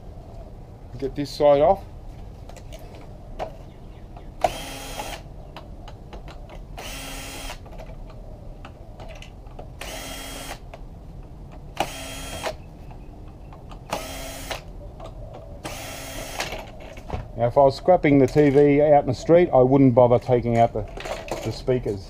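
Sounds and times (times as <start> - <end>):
cordless drill driving screws: 4.4 - 5.2, 6.8 - 7.6, 9.8 - 10.6, 11.8 - 12.6, 13.9 - 14.6, 15.6 - 16.5.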